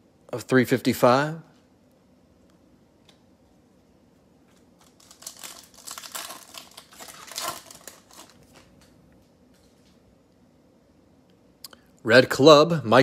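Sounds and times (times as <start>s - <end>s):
foil wrapper tearing and crinkling: 4.8s - 8.9s.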